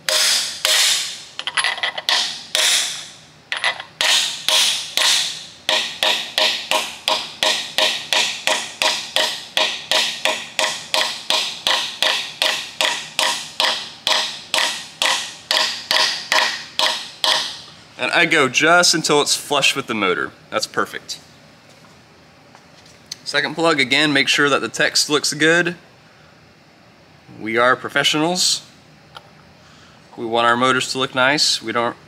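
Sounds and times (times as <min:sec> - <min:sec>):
hammer tapping on metal: 0:03.6 - 0:17.5.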